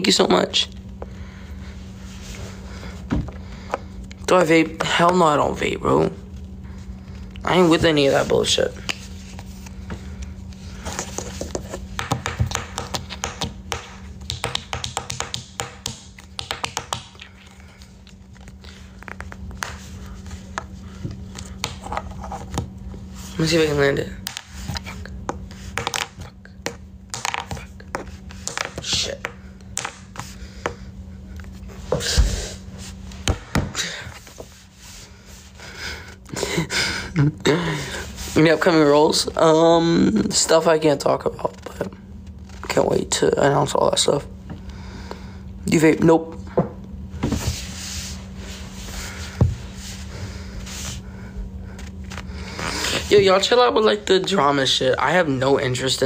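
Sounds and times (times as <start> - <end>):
rubbing and scraping handling noise: 6.3 - 15.4, 16.0 - 35.8, 47.1 - 55.8.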